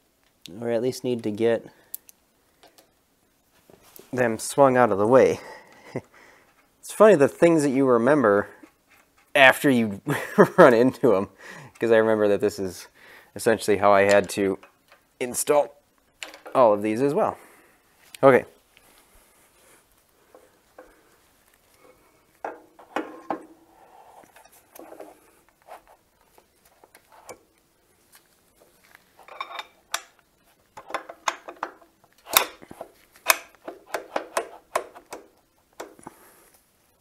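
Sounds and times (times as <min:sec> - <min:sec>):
metal parts clinking and knocking: 0:29.2 - 0:30.2.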